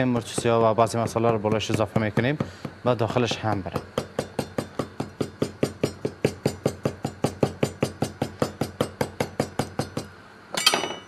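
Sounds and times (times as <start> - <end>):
knife striking meat on wooden board: 0.2 - 10.1.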